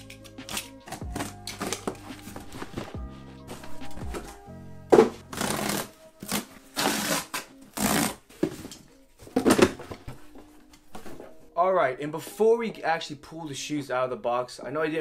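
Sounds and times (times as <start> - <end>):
background music: 0.0 - 15.0.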